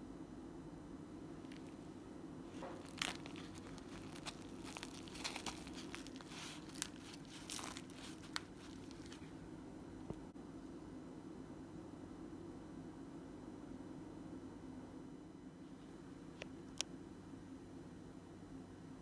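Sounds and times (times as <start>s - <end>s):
steady low hum: 0.0s - 19.0s
sandwich wrapper crinkling: 1.4s - 1.9s, 2.5s - 9.4s.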